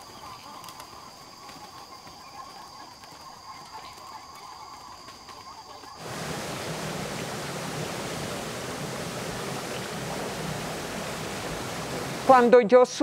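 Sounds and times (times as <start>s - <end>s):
stream water rushing: 6.0s - 12.5s.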